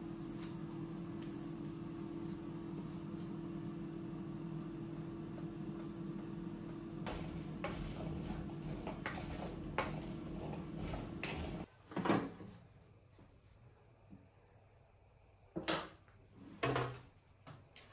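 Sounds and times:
utensil scraping a bowl: 7.1 - 11.7.

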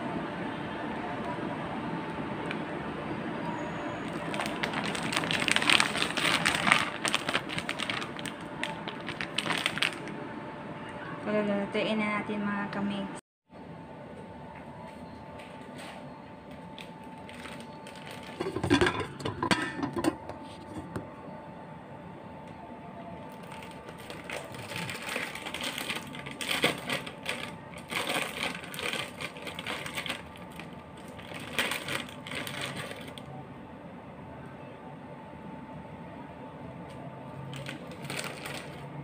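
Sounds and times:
plastic packet crinkling: 4.0 - 10.2, 16.7 - 19.0, 23.3 - 33.3, 37.5 - 38.9.

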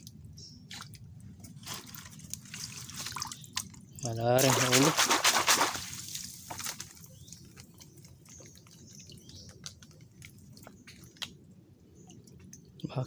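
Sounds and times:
water dripping and trickling: 0.0 - 13.0.

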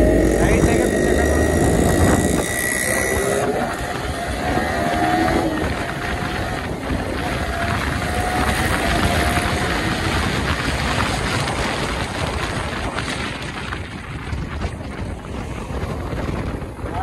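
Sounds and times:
motorcycle running at speed: 0.0 - 17.0
wind rush on microphone: 0.0 - 17.0.

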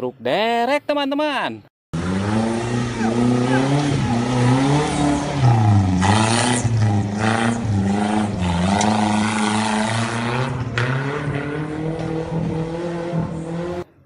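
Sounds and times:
vehicle engine revving: 1.9 - 14.0.

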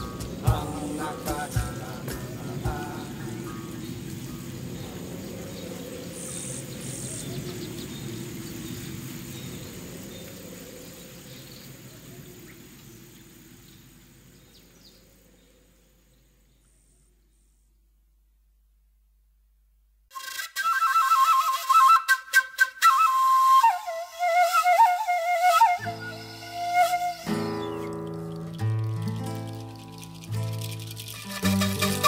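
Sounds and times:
birds calling: 0.0 - 17.5, 24.2 - 32.0
insects chirping: 0.0 - 17.8, 20.2 - 32.0.

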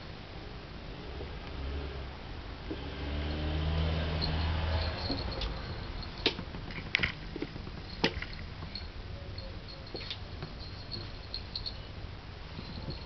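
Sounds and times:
soft rustling: 4.2 - 13.0.

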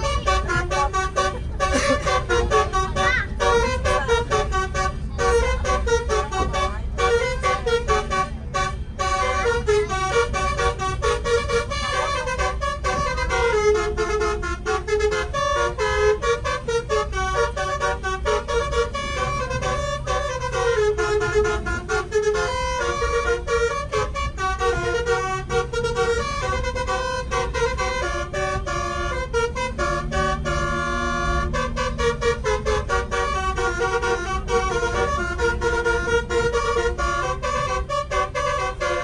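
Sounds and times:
air horn playing a tune: 0.0 - 39.0
low rumble of a bus: 0.0 - 39.0.

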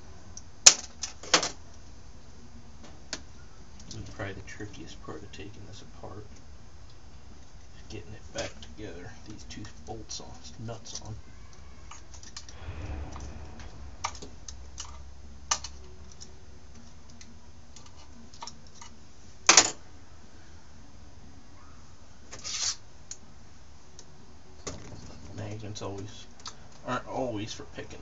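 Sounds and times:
brief metal scrape: 12.4 - 16.0, 22.4 - 22.8.

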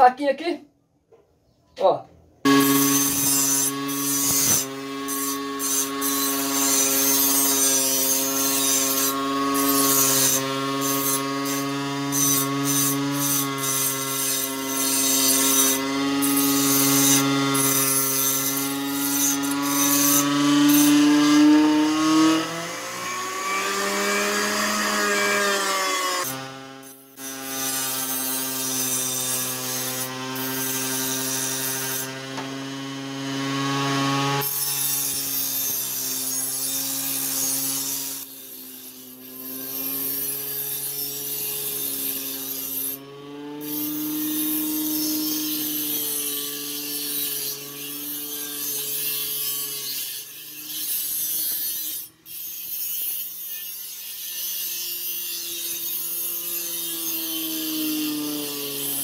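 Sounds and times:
knife grinding on abrasive disc: 2.5 - 21.6, 23.4 - 32.2, 34.4 - 43.0, 43.6 - 59.0
blender motor whine: 2.5 - 29.0.

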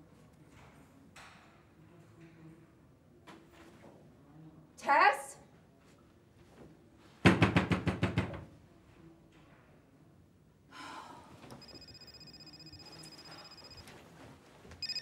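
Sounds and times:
rapid knocking on wooden door: 7.3 - 8.4
faint high tone: 11.6 - 13.9, 14.8 - 15.0.

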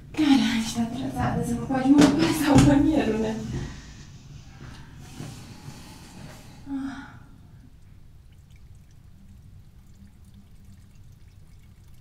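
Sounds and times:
person sighing: 6.6 - 7.6
urine trickling into toilet: 7.3 - 12.0.

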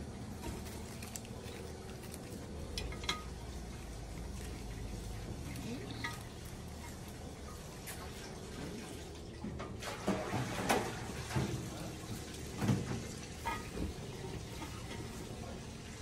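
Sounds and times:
artificial flowers rustling: 0.0 - 8.2.

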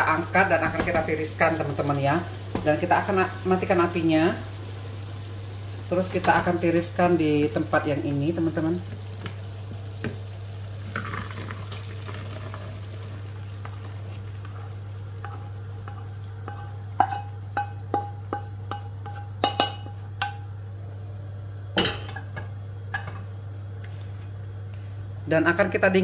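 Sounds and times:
wooden spatula scraping: 13.6 - 20.1
spatula knocking on metal pan: 15.2 - 20.4.

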